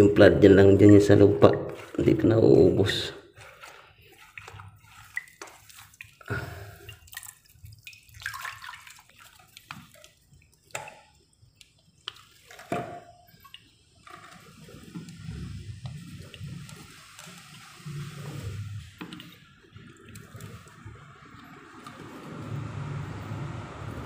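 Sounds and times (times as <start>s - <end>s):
water dripping: 0.0s - 23.2s
hand splashing muddy water: 0.8s - 11.2s.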